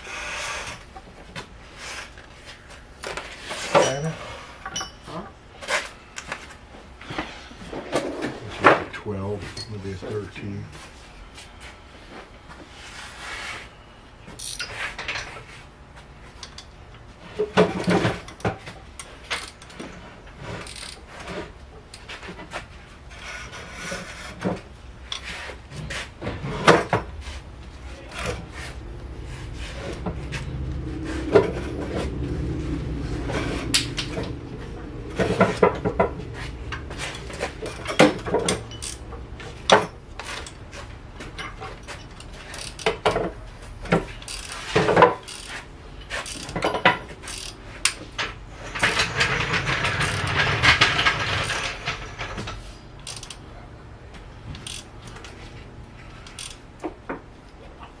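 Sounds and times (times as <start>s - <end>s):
tools clicking and clattering: 14.4s - 15.4s, 16.4s - 16.8s, 17.4s - 22.5s, 35.1s - 53.5s, 54.5s - 55.4s, 56.1s - 57.0s.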